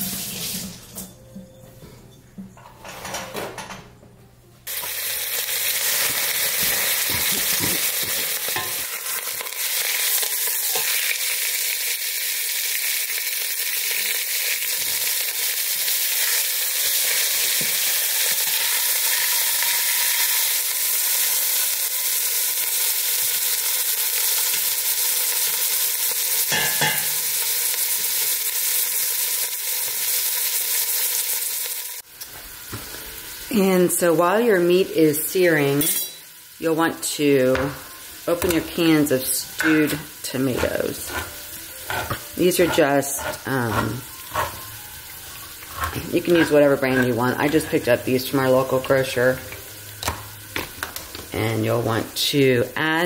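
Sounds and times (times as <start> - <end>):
meat sizzling in oil: 4.7 - 51.3
metal tongs clinking on pot: 35.8 - 36.2, 39.5 - 44.6, 45.7 - 47.8.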